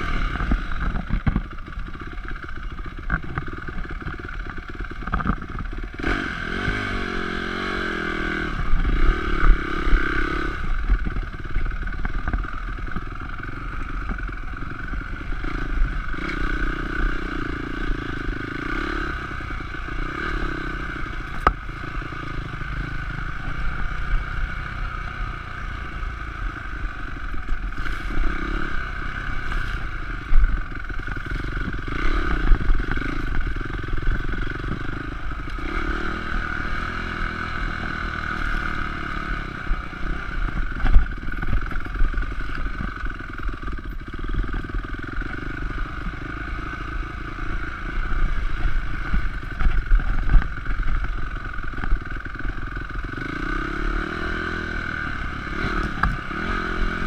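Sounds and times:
bike knocks and rattles: 0:00.5 - 0:06.1
dirt bike engine revving: 0:03.8 - 0:57.0.

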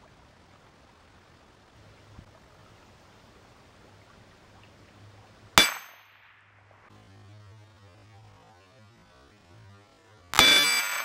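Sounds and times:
bullet clanging on steel plate: 0:05.6 - 0:06.1, 0:10.4 - 0:11.0.

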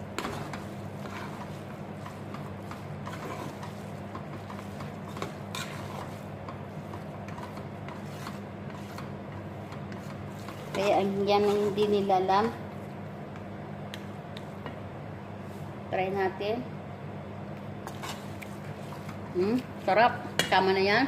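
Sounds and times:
utensil scraping pasta in metal pot: 0:00.0 - 0:12.2, 0:17.8 - 0:19.6.

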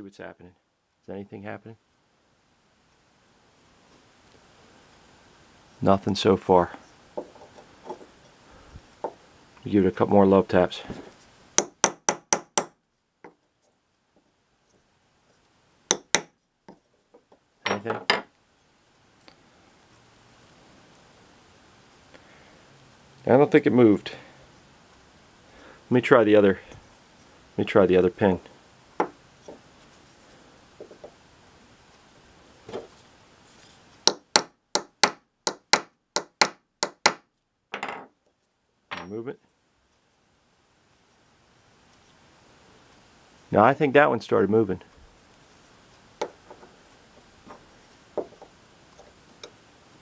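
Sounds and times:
hammer tapping on steel punch: 0:11.6 - 0:12.8, 0:15.9 - 0:16.3, 0:34.1 - 0:37.2.

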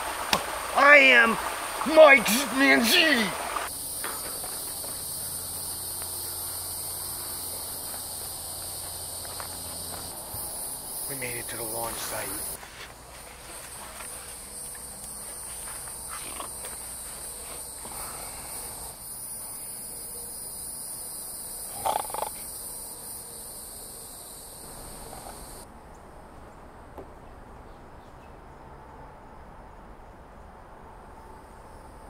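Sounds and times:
night insects chirring: 0:00.0 - 0:25.9, 0:28.5 - 0:32.0.

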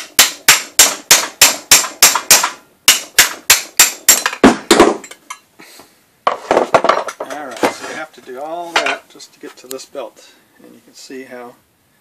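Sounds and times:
hammer striking metal rod: 0:00.0 - 0:05.4.

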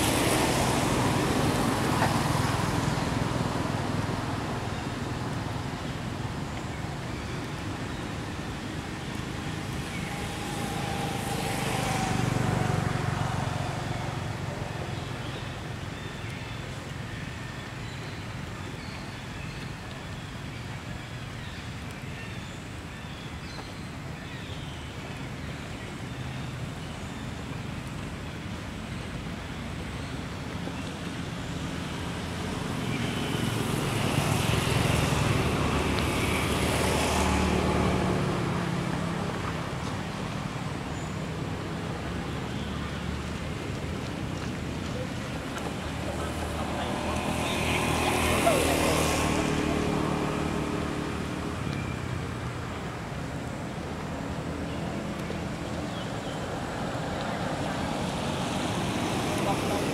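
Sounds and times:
vehicle passing: 0:08.5 - 0:15.8, 0:31.7 - 0:40.9, 0:41.7 - 0:59.9.

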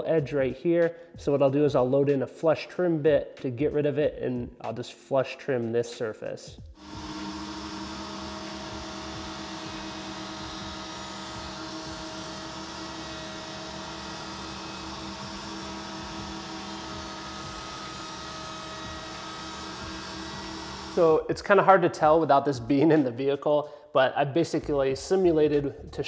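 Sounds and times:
router humming: 0:06.8 - 0:21.1.

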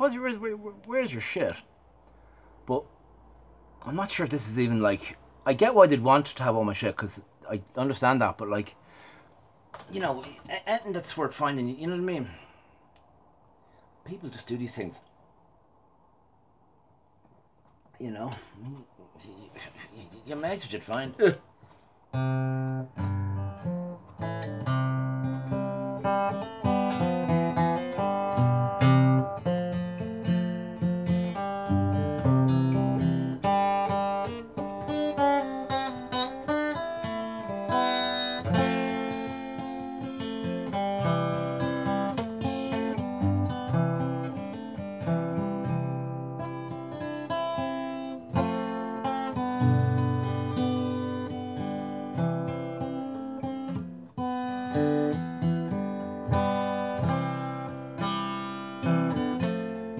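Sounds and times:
acoustic guitar picking and strumming: 0:18.0 - 0:59.9.

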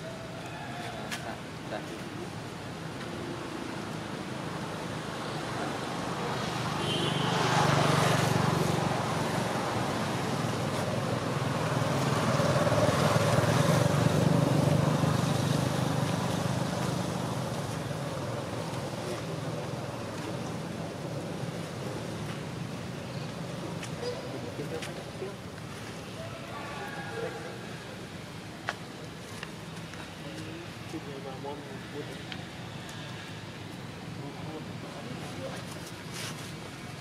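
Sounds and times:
passing road traffic: 0:00.0 - 0:37.0.

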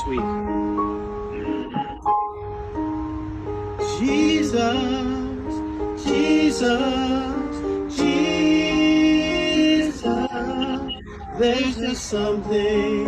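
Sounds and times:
electronic keyboard chords: 0:00.0 - 0:13.0
man singing with vibrato: 0:03.8 - 0:13.0.

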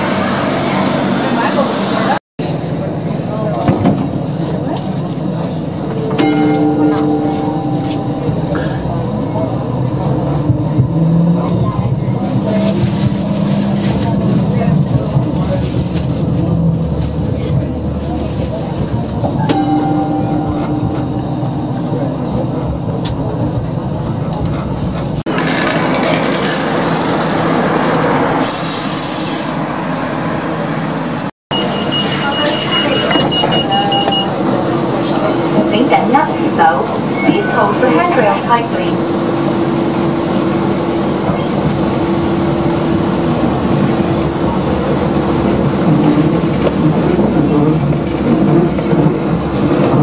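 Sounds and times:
rumble of train wheels and motors: 0:00.0 - 0:50.0
wheel-on-rail noise: 0:21.7 - 0:29.6.

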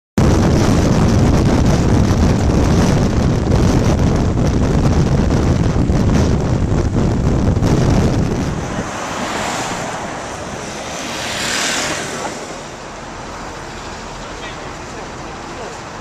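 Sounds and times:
wind buffeting microphone: 0:00.2 - 0:14.1
road and vehicle noise: 0:00.2 - 0:16.0.

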